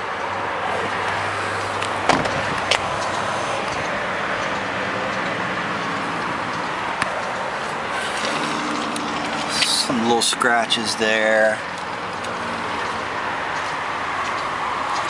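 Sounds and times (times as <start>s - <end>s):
outdoor background noise: 0.0s - 15.0s
car door shutting: 1.8s - 3.9s.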